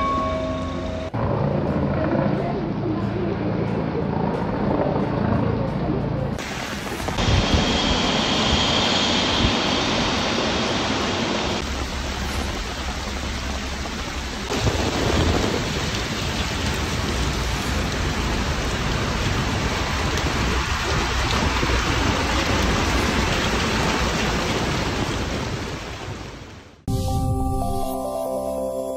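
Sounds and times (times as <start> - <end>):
floodwater rushing: 6.4 - 26.8
heavy rain pouring: 6.4 - 26.8.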